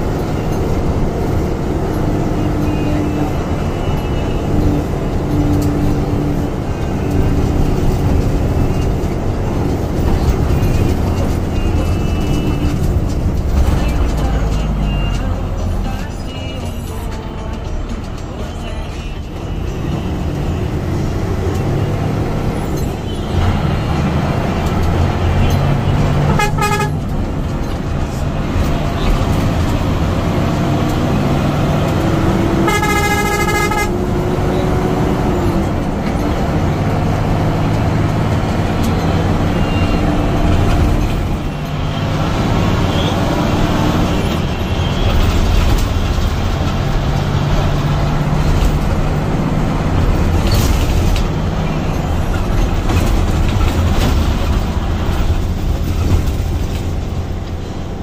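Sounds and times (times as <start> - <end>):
bus diesel engine running: 0.0 - 58.0
bus horn blast: 25.2 - 27.1, 32.2 - 35.0.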